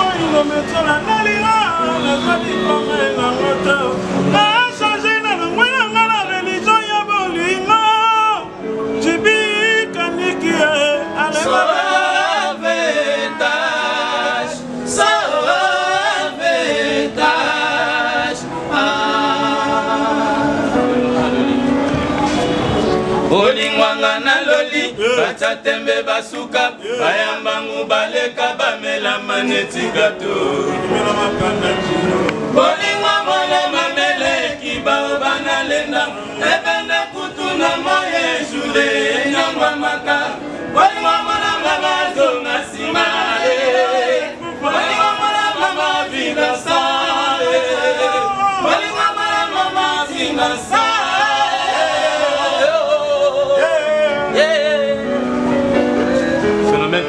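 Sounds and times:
voices singing together: 0:00.0 - 0:56.5.

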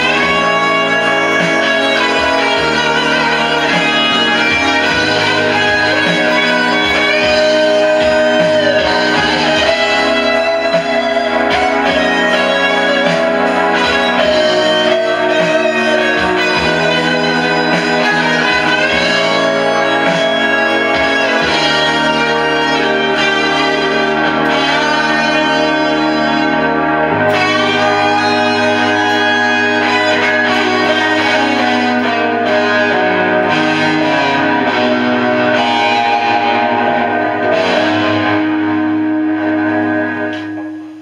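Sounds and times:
backing track bass line: 0:00.0 - 0:41.0
electric guitar lead with bends: 0:00.0 - 0:41.0.

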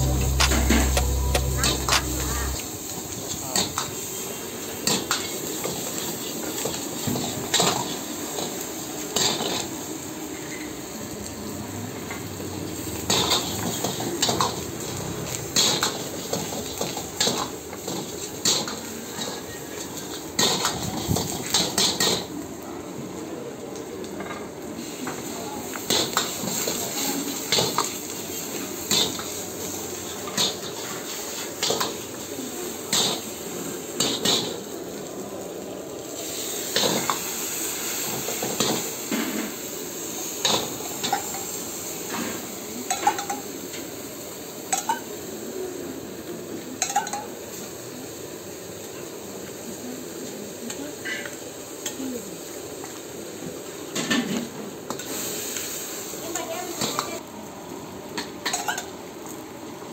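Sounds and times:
food sizzling: 0:00.0 - 0:22.3, 0:24.8 - 0:45.8, 0:58.1 - 0:59.5.

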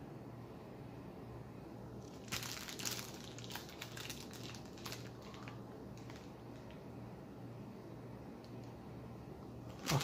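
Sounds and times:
plastic sleeve crinkling: 0:02.0 - 0:06.8, 0:09.7 - 0:10.0.

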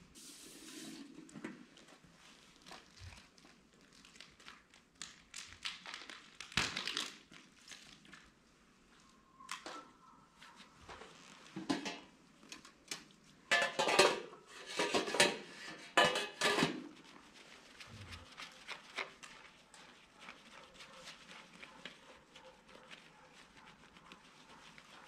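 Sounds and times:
rustling: 0:16.4 - 0:25.0.

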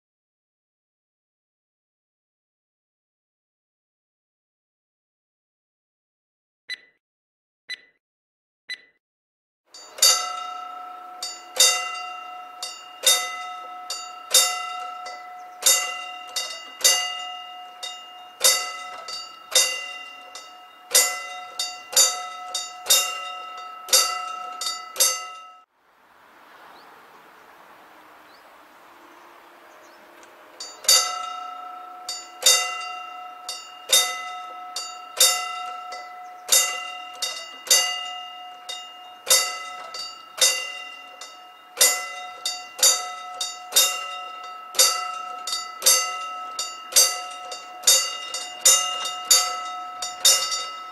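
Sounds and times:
level crossing warning bell: 0:09.7 - 0:25.7, 0:28.3 - 0:50.9.

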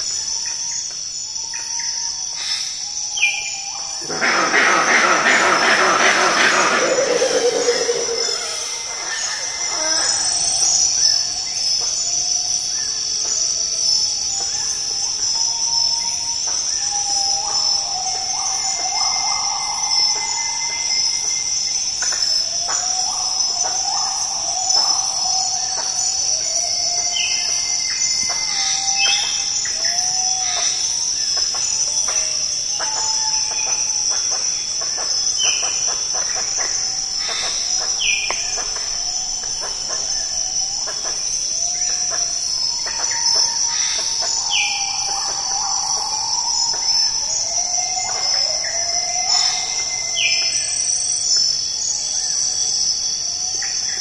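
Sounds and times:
high-pitched insect drone: 0:00.0 - 0:54.0
birds calling: 0:01.6 - 0:11.6.

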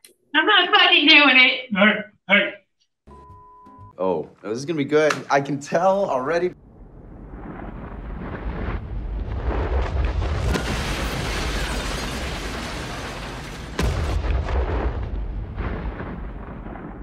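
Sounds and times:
loud rumbling boom: 0:06.6 - 0:17.0
sharp crack: 0:07.4 - 0:17.0.

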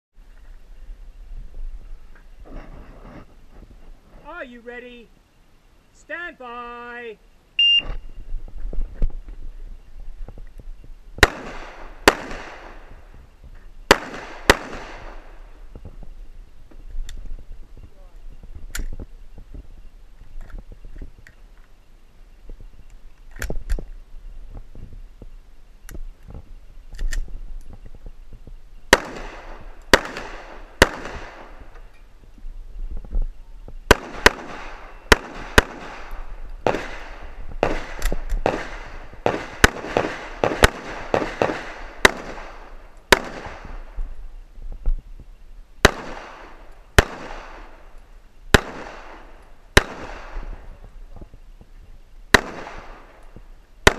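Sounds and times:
pistol shots echoing: 0:11.2 - 0:13.0, 0:13.9 - 0:15.4, 0:28.9 - 0:31.6, 0:33.9 - 0:43.9, 0:45.8 - 0:47.9, 0:48.5 - 0:50.6, 0:52.3 - 0:53.2.

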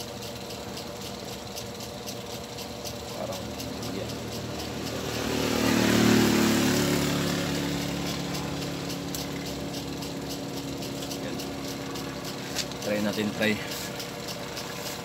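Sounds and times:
steady background hum: 0:00.0 - 0:15.0
vehicle passing by: 0:03.3 - 0:15.0.

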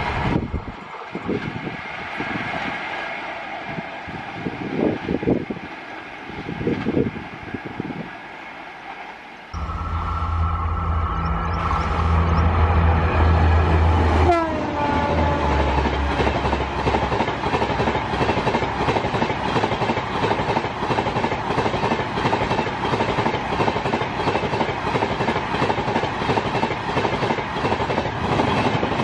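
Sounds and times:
train horn: 0:09.6 - 0:16.4
train wheels clattering on rails: 0:15.4 - 0:29.0.

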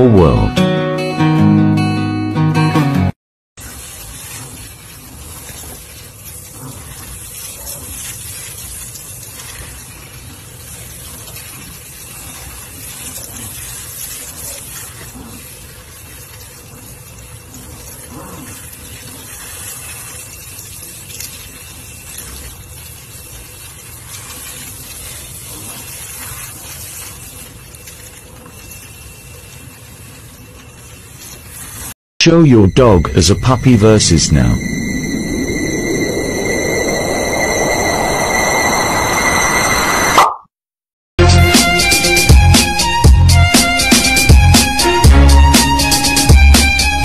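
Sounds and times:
water running from sink sprayer: 0:03.6 - 0:32.0.

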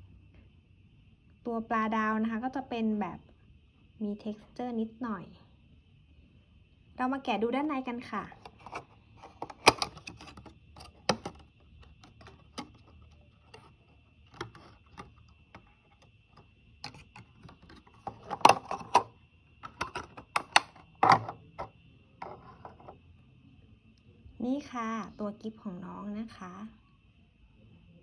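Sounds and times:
plastic box clicking and crinkling: 0:08.4 - 0:16.1, 0:16.8 - 0:21.4.

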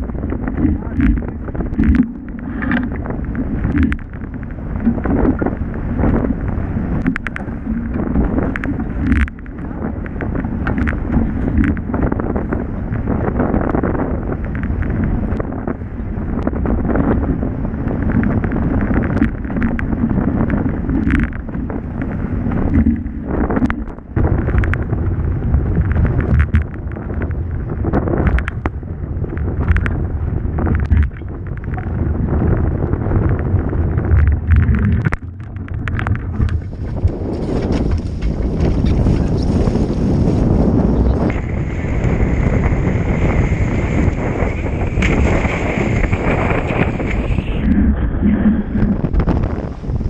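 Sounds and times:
water rushing past hulls: 0:00.0 - 0:50.0
wind buffeting microphone: 0:00.0 - 0:50.0.

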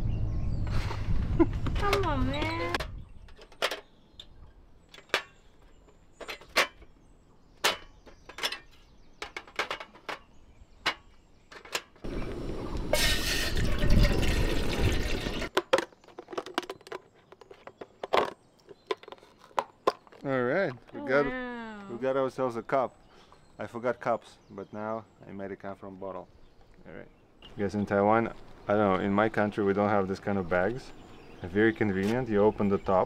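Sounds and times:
stove handling clicks and knocks: 0:07.6 - 0:12.0.

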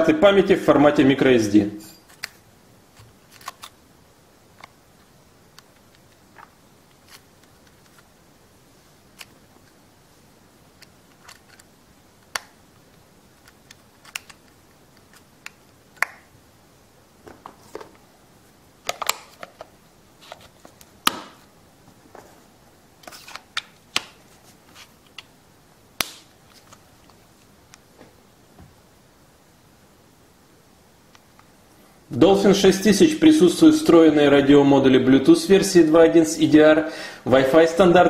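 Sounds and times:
plastic clicks and snaps: 0:10.8 - 0:16.3, 0:18.8 - 0:19.7.

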